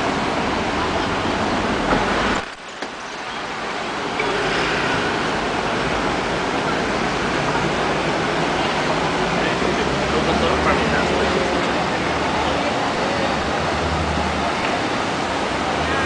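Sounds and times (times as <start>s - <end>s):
outdoor city ambience: 0.0s - 16.0s.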